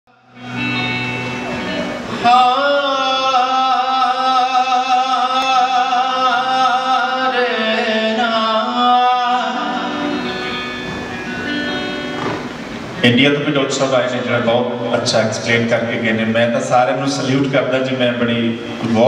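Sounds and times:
man singing with vibrato: 0:00.1 - 0:12.1.

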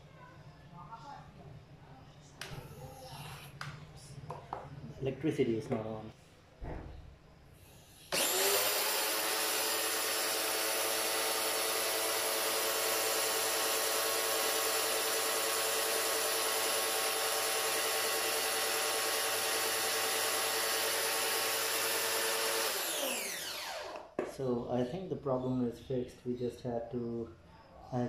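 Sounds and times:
pressure washer motor whining: 0:08.1 - 0:24.2.

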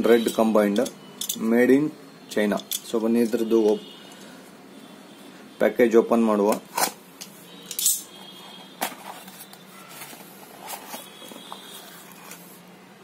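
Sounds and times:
cardboard flaps rustling: 0:08.6 - 0:12.5.

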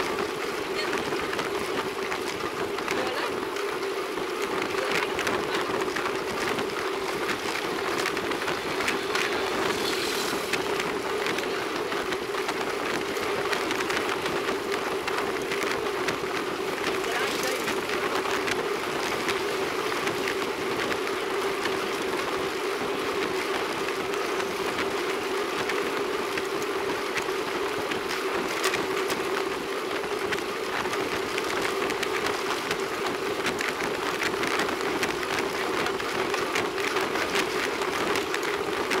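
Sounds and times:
bike rattles and clicks: 0:00.0 - 0:39.0
constant hum: 0:00.0 - 0:39.0
tyres rolling on asphalt: 0:00.0 - 0:39.0
wind rushing: 0:03.3 - 0:15.0.

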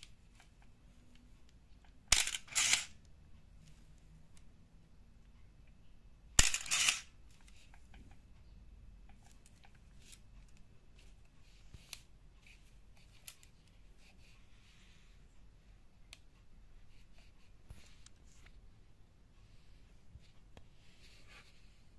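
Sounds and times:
camera shutter click: 0:02.1 - 0:02.9.

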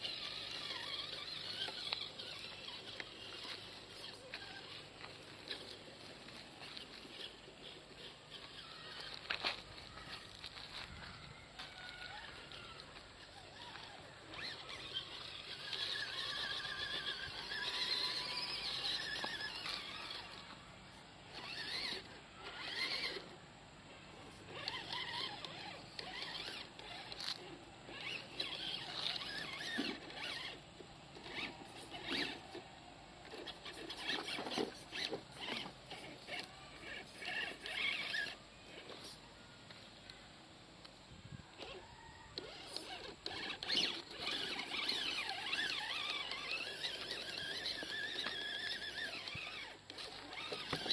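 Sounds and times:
electric motor whining: 0:00.0 - 0:20.6, 0:21.3 - 0:23.4, 0:24.3 - 0:32.6, 0:33.2 - 0:39.1, 0:41.5 - 0:50.9.

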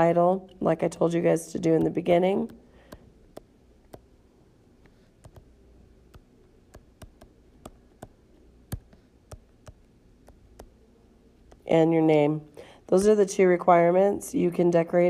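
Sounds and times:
stylus tapping on glass screen: 0:06.1 - 0:10.8.

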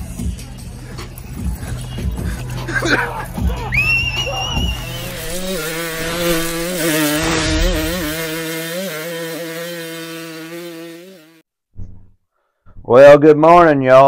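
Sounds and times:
dirt bike engine revving: 0:03.5 - 0:11.4.

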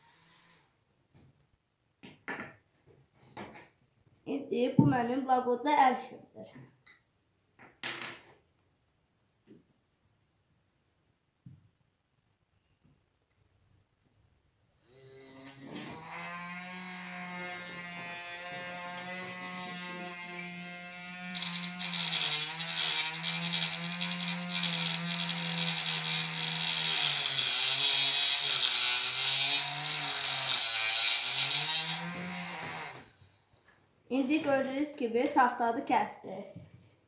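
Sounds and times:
saw blade cutting pencil: 0:15.2 - 0:33.0.

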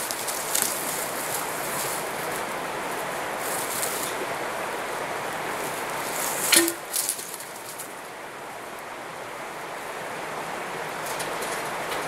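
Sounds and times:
creek water rushing: 0:00.0 - 0:12.0.

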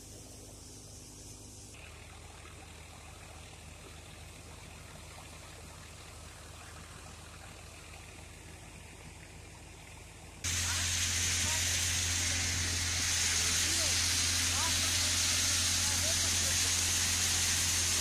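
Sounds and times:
tractor engine drone: 0:00.0 - 0:18.0
rushing of machine and chaff: 0:10.5 - 0:18.0.

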